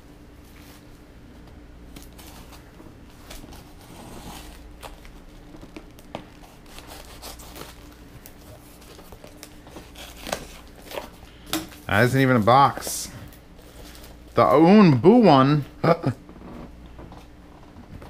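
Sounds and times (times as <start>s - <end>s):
wrapping tearing and rustling: 0.4s - 14.6s.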